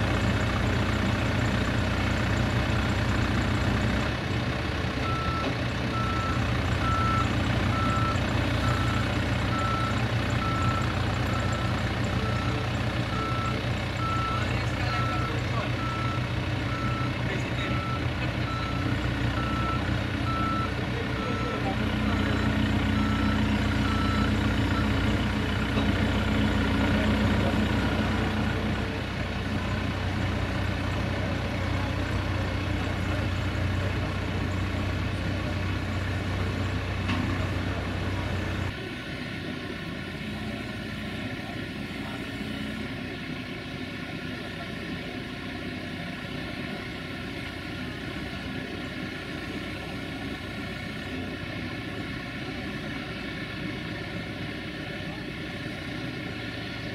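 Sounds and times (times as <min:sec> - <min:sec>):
truck diesel engine running: 0:00.0 - 0:56.9
reversing alarm beeping: 0:05.0 - 0:25.1.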